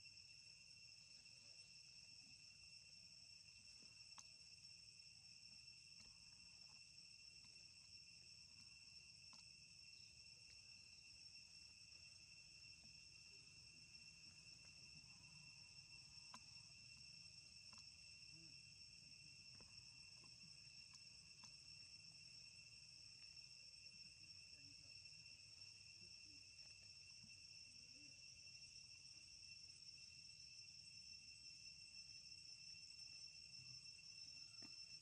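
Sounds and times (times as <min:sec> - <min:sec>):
faint insect chorus: 0:00.0 - 0:35.0
soft ticks: 0:04.1 - 0:04.3, 0:09.2 - 0:09.5, 0:16.2 - 0:16.5, 0:20.8 - 0:21.6.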